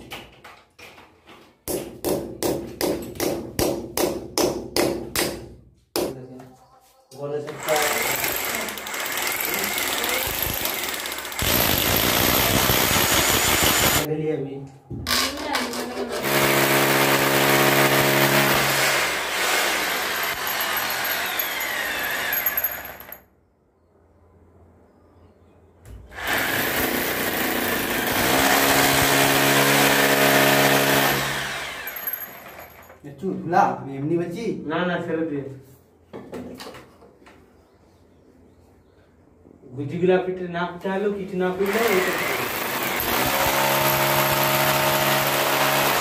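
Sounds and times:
hammer drill boring into masonry: 7.5 - 14.1, 16.2 - 23.2, 26.2 - 33.0, 41.6 - 46.0.

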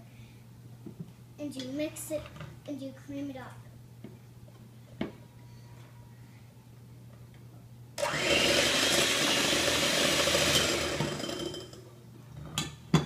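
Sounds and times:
electric hand mixer running: 8.0 - 11.8.

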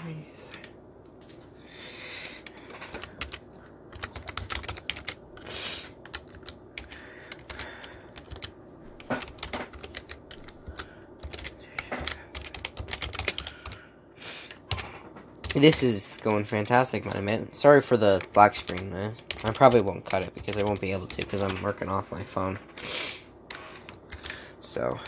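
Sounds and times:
typing on a keyboard: 2.2 - 13.8, 14.7 - 21.8, 24.0 - 24.4.

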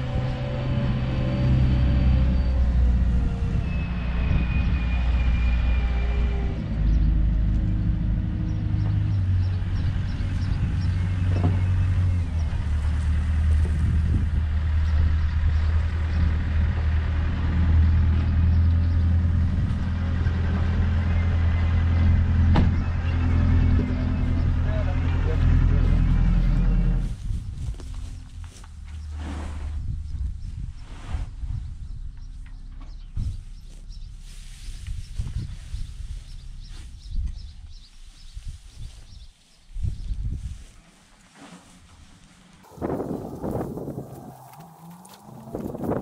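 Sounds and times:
vehicle engine droning: 0.0 - 30.4, 40.4 - 46.0.

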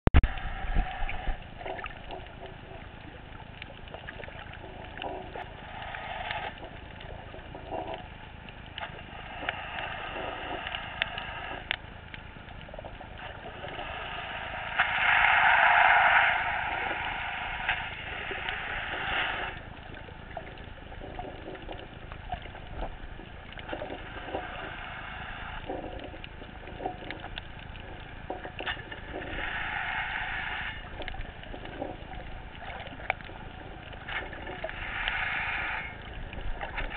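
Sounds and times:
muffled underwater water rush: 0.2 - 36.9
small underwater clicks and crackles: 0.2 - 36.9
louder rushing noise: 14.7 - 18.0.

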